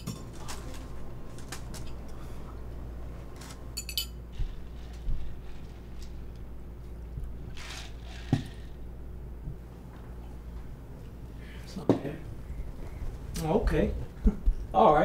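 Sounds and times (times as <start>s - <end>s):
cutlery clinking on plates: 3.8s - 4.2s.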